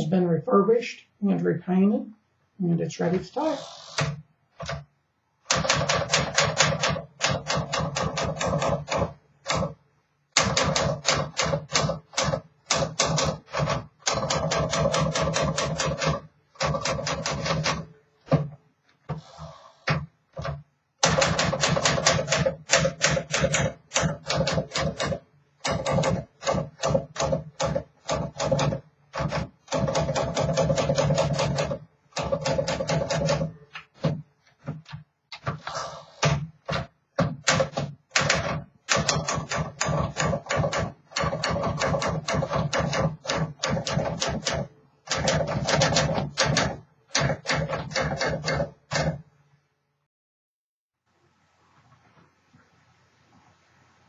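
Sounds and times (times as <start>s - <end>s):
manual typewriter typing: 5.4s - 18.4s, 19.8s - 35.5s, 36.2s - 49.2s.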